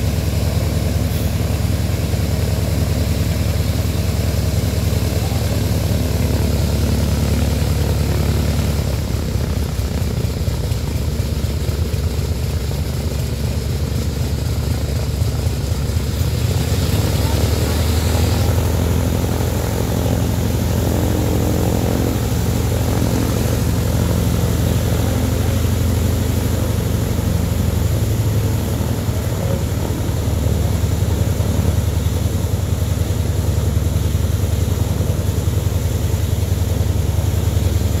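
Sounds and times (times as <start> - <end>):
radial aircraft engine throbbing: 0.0 - 38.0.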